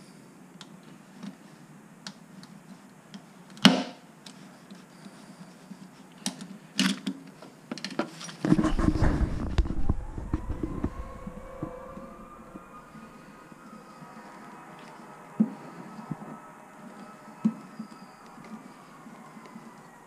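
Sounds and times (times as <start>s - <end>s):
rumbling scraping noise: 8.4s - 16.4s.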